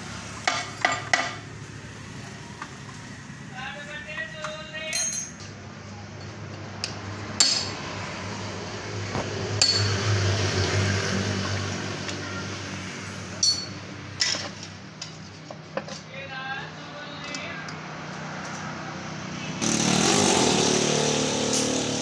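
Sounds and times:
metal parts clinking: 4.8s - 5.6s, 13.4s - 15.2s.

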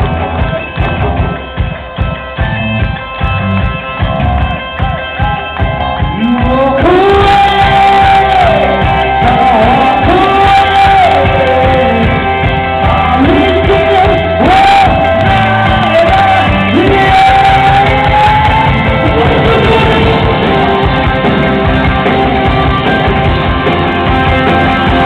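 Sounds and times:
live rock band playing: 0.0s - 25.0s
man singing long notes: 6.2s - 21.0s.

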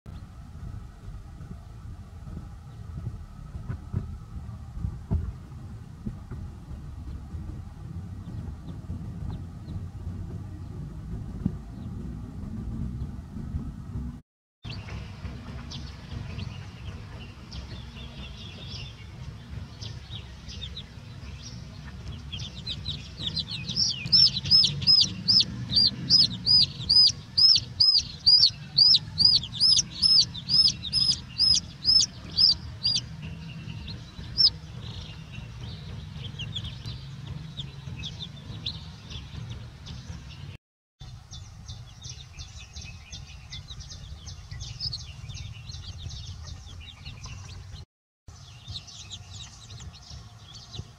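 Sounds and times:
steady low rumble: 0.1s - 50.9s
chicks peeping: 19.8s - 40.1s, 42.0s - 47.8s, 48.4s - 50.9s.

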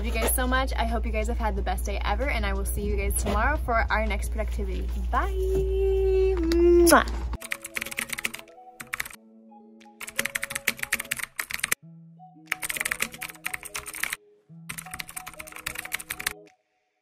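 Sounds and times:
keyboard typing clicks: 7.4s - 9.2s, 9.8s - 11.8s, 12.5s - 16.5s
background music held notes: 7.4s - 17.0s.

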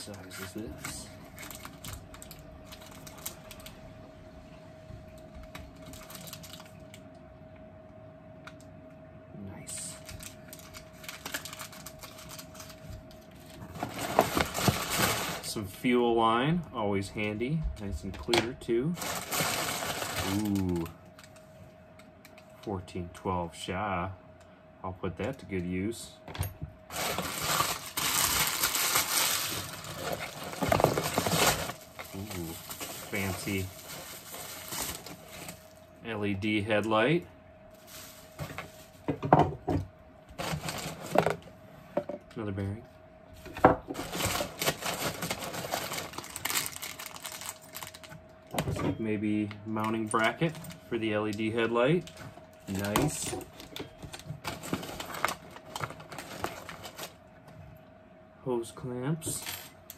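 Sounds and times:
clicks and crinkles of unwrapping: 0.0s - 3.8s, 5.1s - 7.1s, 9.6s - 15.6s, 17.2s - 22.7s, 26.9s - 35.9s, 37.7s - 39.1s, 40.3s - 41.5s, 43.4s - 48.8s, 49.4s - 57.2s
faint steady hum: 0.0s - 59.9s.

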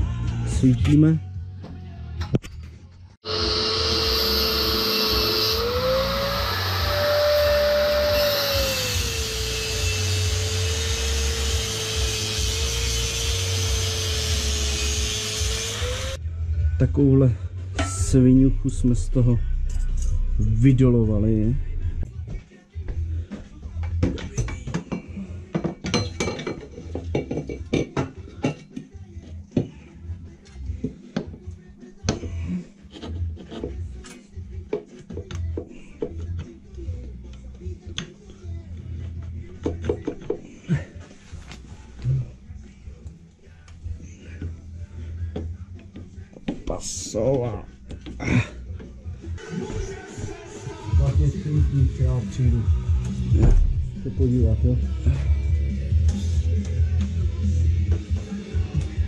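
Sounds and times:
small electric motor whining: 3.2s - 16.2s.

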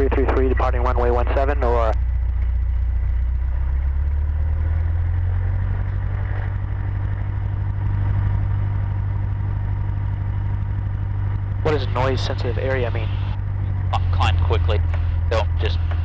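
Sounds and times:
aircraft engine droning: 0.0s - 16.0s.

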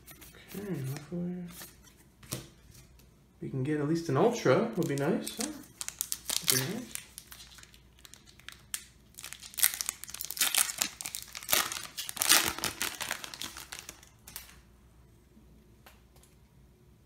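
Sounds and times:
foil wrapper crinkling and tearing: 4.8s - 14.6s.

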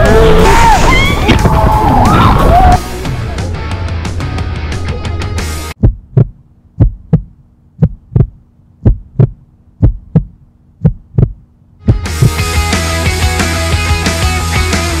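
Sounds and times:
heartbeat thumps: 5.8s - 12.5s.

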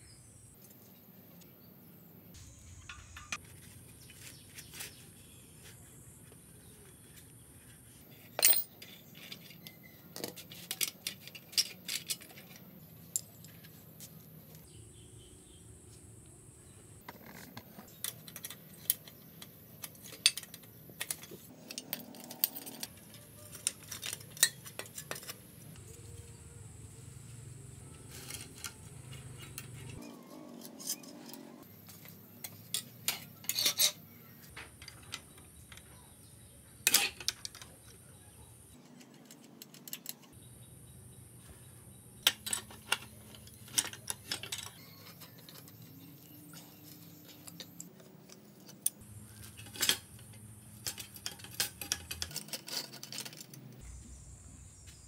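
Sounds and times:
spanners clinking on bolts: 8.2s - 14.2s, 17.1s - 25.9s, 28.2s - 35.9s, 42.2s - 53.6s.

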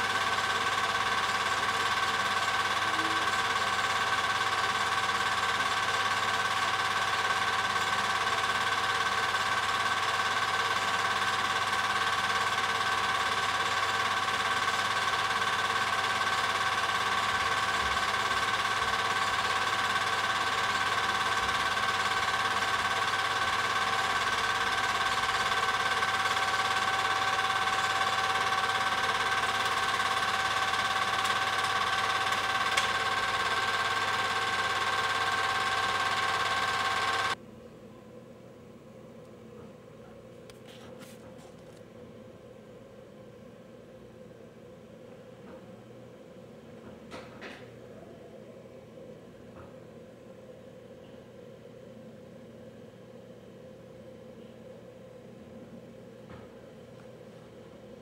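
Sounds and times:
film projector whirring: 0.0s - 37.4s.

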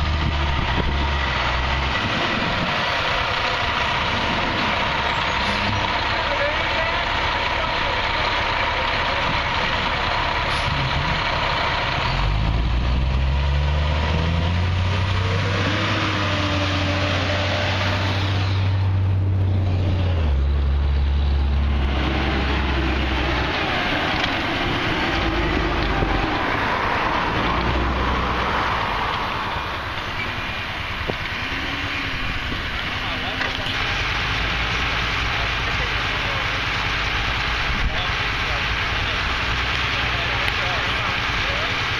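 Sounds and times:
fire truck engine revving: 0.0s - 41.9s.

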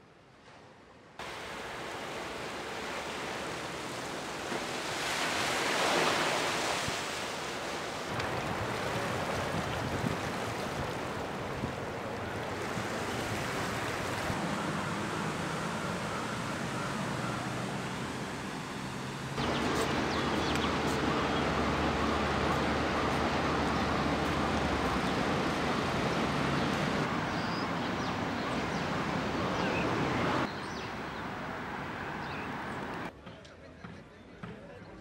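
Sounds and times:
distant traffic: 1.2s - 34.8s
bird calls: 15.5s - 22.0s, 26.1s - 31.3s.

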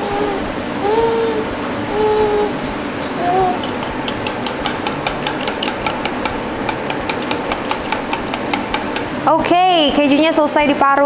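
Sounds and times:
fork stirring in a steel bowl: 3.6s - 9.2s.

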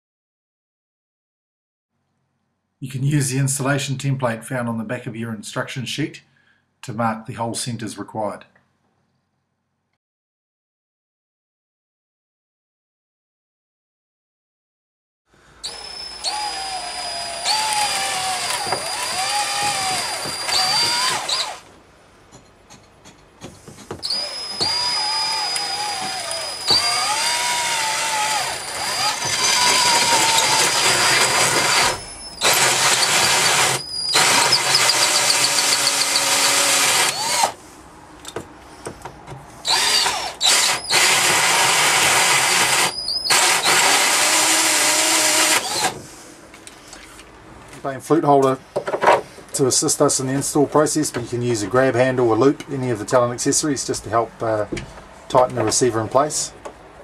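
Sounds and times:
power drill with hole saw: 15.6s - 21.7s, 24.0s - 37.6s, 39.6s - 46.0s.

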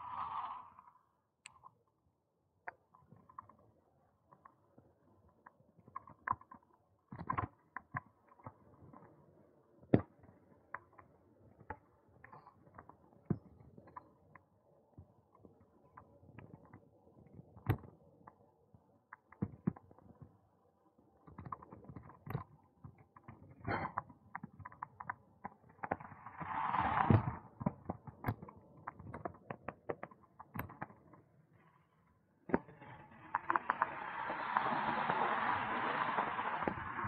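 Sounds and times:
car passing: 33.2s - 37.0s
bicycle rattling on tarmac: 33.3s - 37.0s.

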